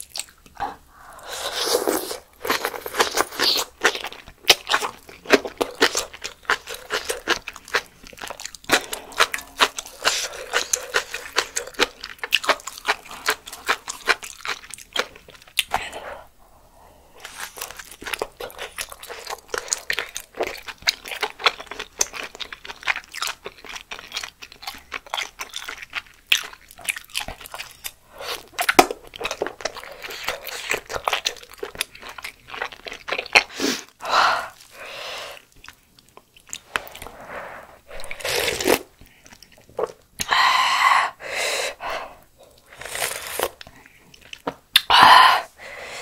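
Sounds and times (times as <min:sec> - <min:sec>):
chewing with wet clicks: 0:00.0 - 0:00.7, 0:02.4 - 0:15.8, 0:17.6 - 0:33.5, 0:35.5 - 0:37.1, 0:38.9 - 0:40.3, 0:43.6 - 0:44.9
slurping broth from a spoon: 0:42.6 - 0:43.6.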